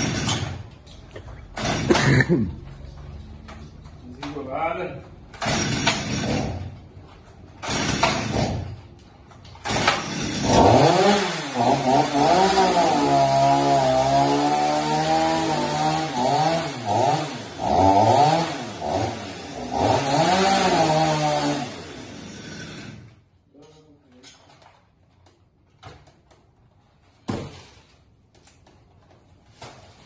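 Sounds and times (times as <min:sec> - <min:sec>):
chainsaw revving: 0:00.0 - 0:00.6, 0:01.6 - 0:02.3, 0:05.4 - 0:06.7, 0:07.6 - 0:08.7, 0:09.6 - 0:23.2.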